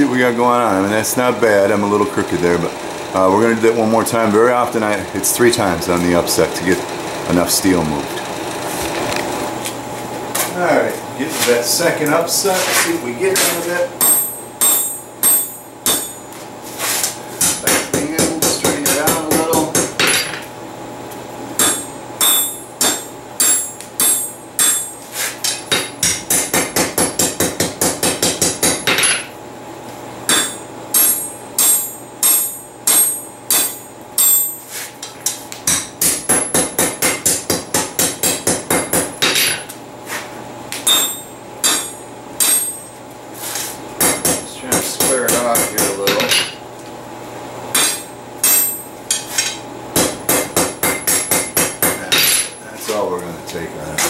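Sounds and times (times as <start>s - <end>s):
hammer striking steel on anvil: 13.4s - 16.3s, 17.4s - 20.4s, 21.6s - 29.3s, 30.3s - 34.7s, 35.7s - 39.7s, 40.8s - 43.0s, 44.0s - 46.6s, 47.7s - 52.6s.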